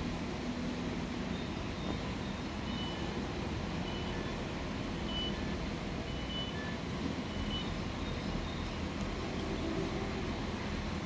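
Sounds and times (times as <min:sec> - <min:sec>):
traffic rumble: 0:00.0 - 0:11.0
high electronic beeps: 0:01.3 - 0:03.1, 0:03.8 - 0:04.4, 0:05.0 - 0:08.9.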